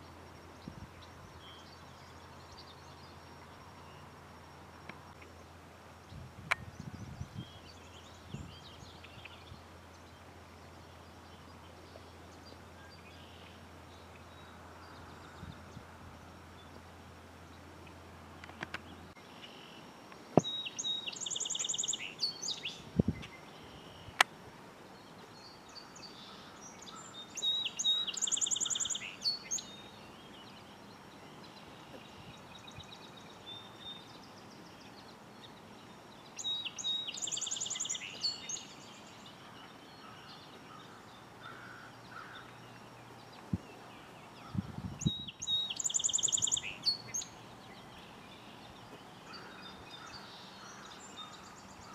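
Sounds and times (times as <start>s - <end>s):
sparrow singing trills: 20.4s - 24.2s, 25.1s - 51.9s.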